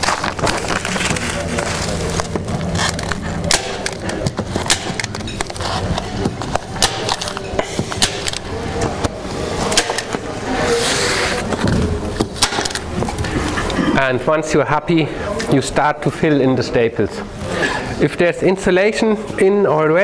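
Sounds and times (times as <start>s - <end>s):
plastic sheet rustling and crinkling: 0.0s - 13.6s
sharp clicks and knocks: 2.2s - 10.2s.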